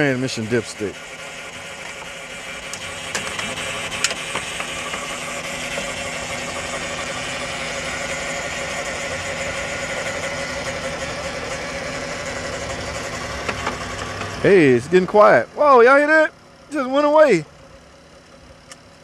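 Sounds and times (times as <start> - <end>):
car engine idling: 0.0 - 19.0
transmission whine: 0.0 - 19.0.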